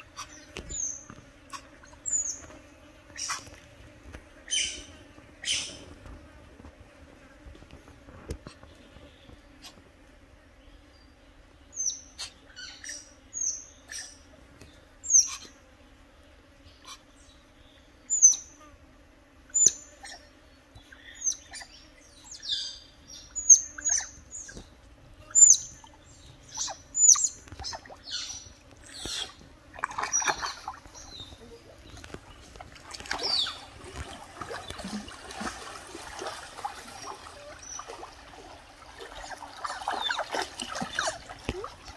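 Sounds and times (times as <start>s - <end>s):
otters chirping: 25.3s - 29.4s, 30.0s - 34.8s
water splashing: 28.8s - 41.9s.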